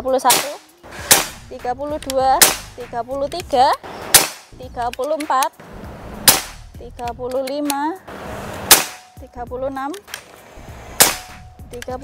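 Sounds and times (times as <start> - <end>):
air rifle shots: 0.2 - 3.0, 3.8 - 4.6, 5.6 - 6.8, 8.0 - 9.2, 10.0 - 11.5.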